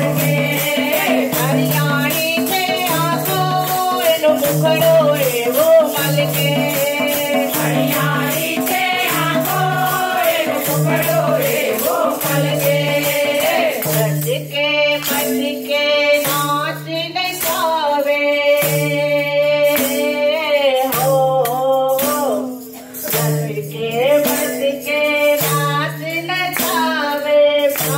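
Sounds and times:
kartal clappers jingling: 0:00.0 - 0:16.8
small brass cymbals jingling: 0:00.0 - 0:27.9.

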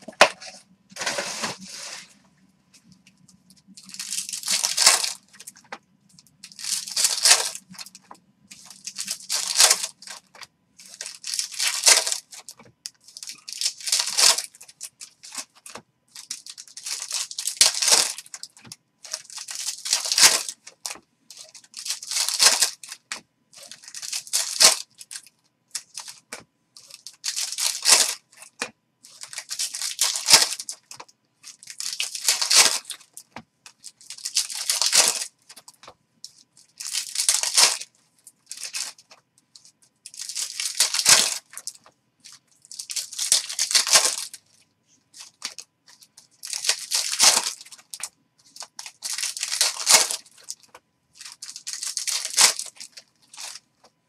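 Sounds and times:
foil packs tearing and crinkling: 0:03.8 - 0:05.6, 0:06.4 - 0:07.9, 0:08.5 - 0:26.2, 0:26.8 - 0:33.2, 0:33.9 - 0:35.3, 0:36.8 - 0:39.1, 0:40.1 - 0:44.4, 0:46.4 - 0:53.6.

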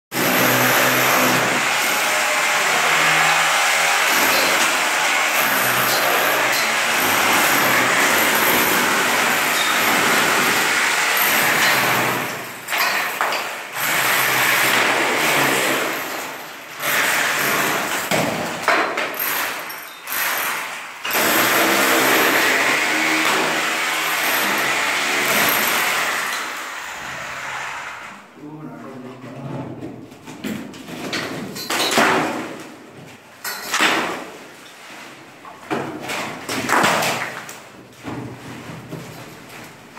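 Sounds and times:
angle grinder cutting plaster: 0:00.2 - 0:12.6, 0:20.1 - 0:28.2.

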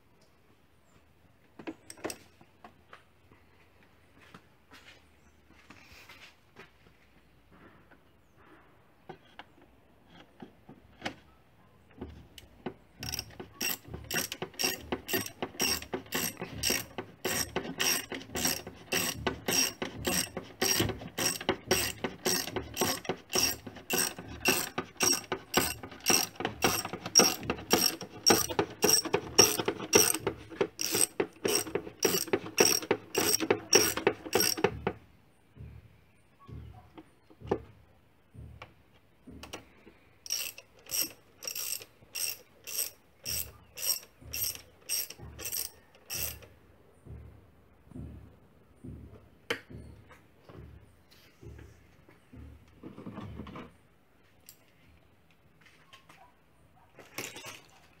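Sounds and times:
socket ratchet clicking: 0:13.0 - 0:34.8, 0:40.3 - 0:46.4.

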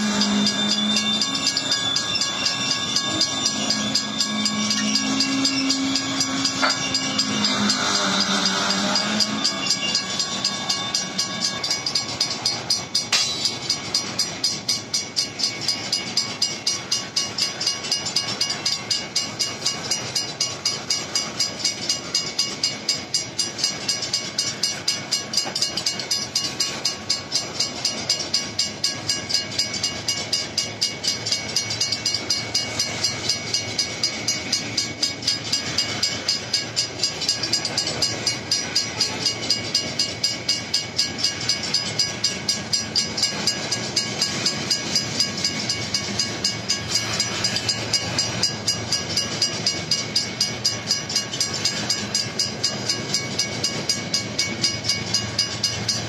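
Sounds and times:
sharp metal clanks: 0:00.0 - 0:22.7
freight train rumbling and clattering: 0:00.0 - 0:56.0
mechanical crossing bells ringing: 0:00.0 - 0:56.0.

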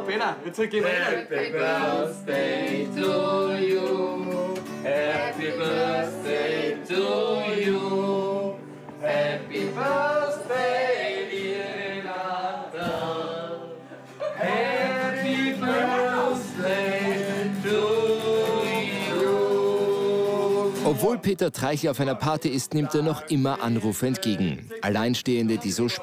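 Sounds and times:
men singing: 0:00.8 - 0:21.0
acoustic guitar: 0:00.8 - 0:26.0.

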